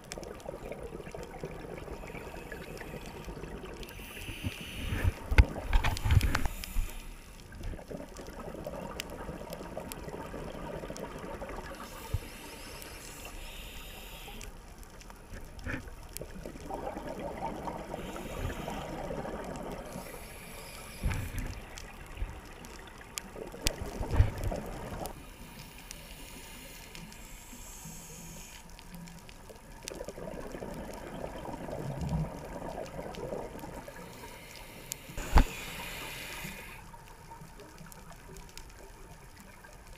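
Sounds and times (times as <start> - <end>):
underwater air bubbling: 0.0 - 37.8
regulator inhalation hiss: 3.9 - 5.2, 6.0 - 7.4, 11.8 - 14.6, 17.9 - 19.2, 19.9 - 21.6, 25.2 - 28.7, 33.9 - 36.9.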